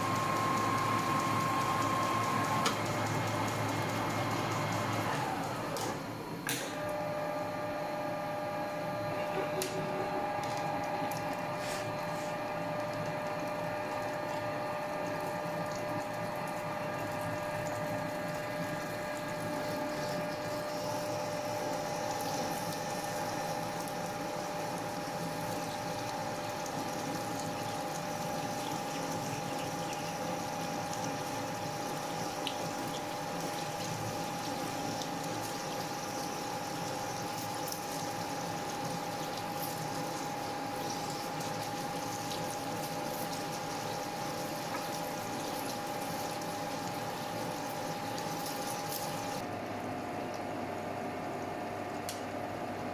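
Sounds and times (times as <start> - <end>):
coolant pouring and splashing: 0.0 - 5.8, 10.3 - 49.5
lathe running steadily: 0.0 - 48.2.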